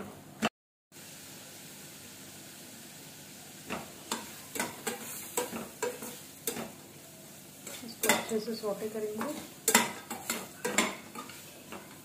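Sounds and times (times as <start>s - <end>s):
frying sizzle: 0.0s - 12.0s
metal spatula scraping a pan: 3.7s - 6.8s, 7.6s - 12.0s.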